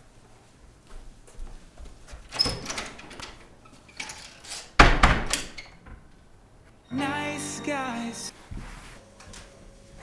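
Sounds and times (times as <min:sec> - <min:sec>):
door banging shut: 0:04.8 - 0:06.0
door knock and rattle: 0:04.8 - 0:06.0.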